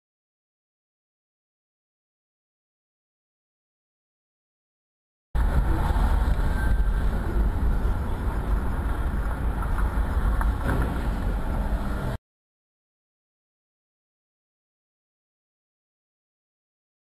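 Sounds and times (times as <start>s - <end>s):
car driving road and engine noise: 5.4s - 12.2s.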